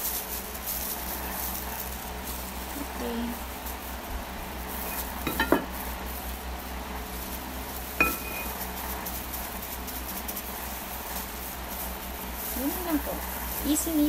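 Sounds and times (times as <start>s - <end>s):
steady low hum: 0.0s - 14.0s
utensil clinking on glass bowl: 5.3s - 5.7s, 8.0s - 8.6s.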